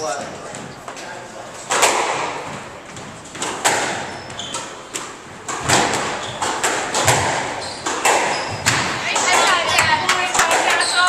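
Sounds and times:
squash ball hits: 1.7s - 11.0s
shoes squeaking on wooden floor: 2.4s - 11.0s.

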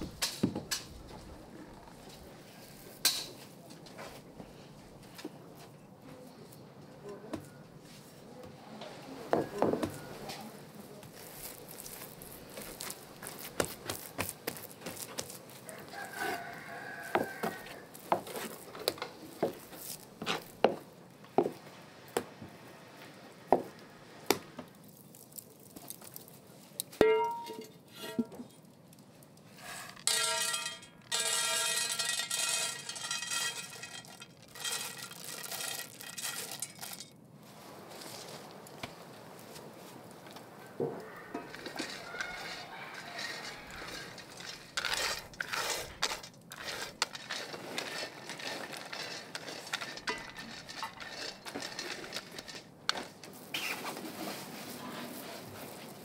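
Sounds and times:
dishes and pots clinking: 27.0s - 28.5s, 30.0s - 37.2s, 49.4s - 52.6s.

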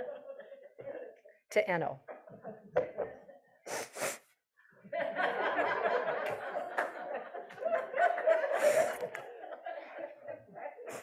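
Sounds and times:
congregation laughing: 0.0s - 1.3s, 4.9s - 11.0s.

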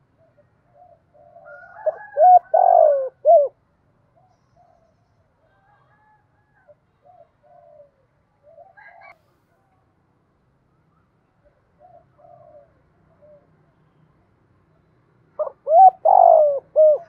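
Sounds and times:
dove cooing: 0.2s - 3.6s, 7.0s - 9.2s, 11.8s - 13.5s, 15.4s - 17.0s.

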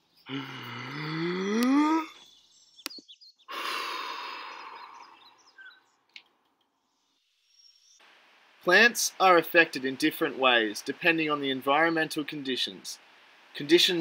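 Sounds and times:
person breathing in: 0.3s - 2.2s, 3.5s - 5.2s
person sighing: 0.3s - 2.2s, 3.5s - 5.3s.

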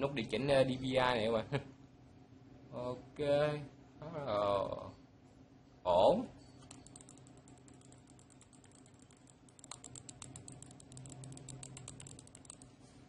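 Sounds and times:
wireless mouse clicking: 6.7s - 12.7s.

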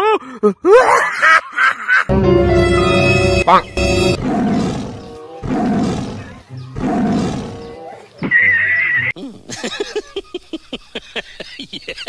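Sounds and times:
high wavering squeal: 2.1s - 4.2s
lion roar: 4.1s - 8.2s.

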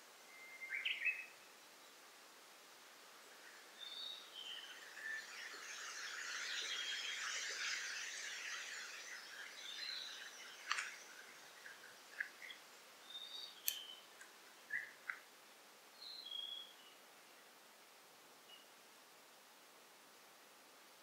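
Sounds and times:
forest birds calling: 0.3s - 2.0s, 3.1s - 15.3s, 16.0s - 17.0s
sharp clicks: 10.6s - 11.0s, 13.6s - 14.3s.

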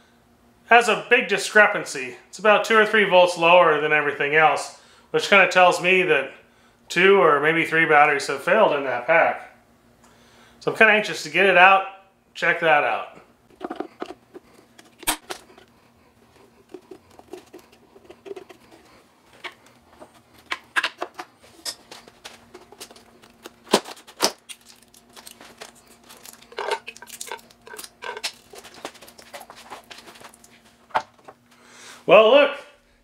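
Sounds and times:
steady low hum: 0.0s - 33.0s
metal parts clicking and clinking: 24.4s - 28.8s.

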